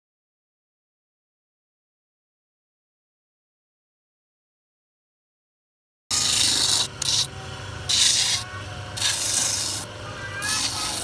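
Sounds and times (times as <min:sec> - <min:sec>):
shoe sole grinding rasp: 0:06.1 - 0:07.3, 0:07.9 - 0:11.0
sanding drum motor hum: 0:06.1 - 0:11.0.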